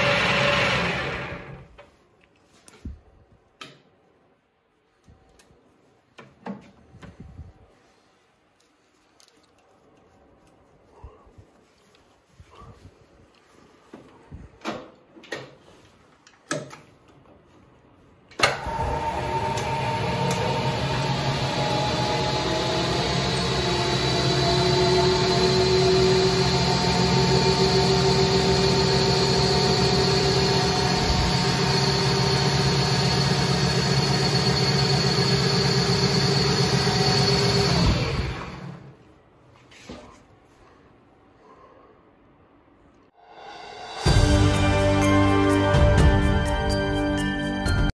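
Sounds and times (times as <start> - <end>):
lathe motor humming and whining: 0.0 - 1.7, 18.6 - 38.9.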